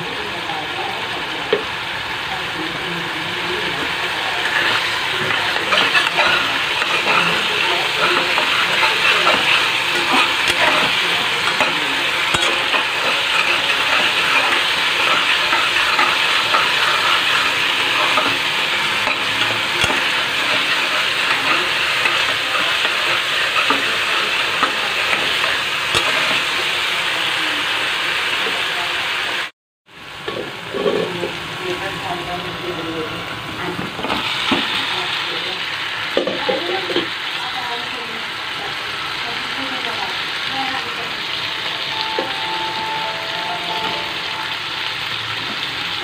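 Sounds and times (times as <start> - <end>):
masala sizzling in oil: 0.0 - 46.0
utensil stirring and knocking pot: 4.4 - 26.8.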